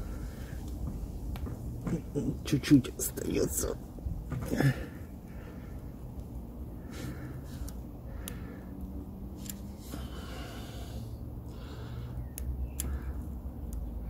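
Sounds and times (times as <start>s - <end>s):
person breathing: 0.0s - 0.7s, 4.4s - 13.5s.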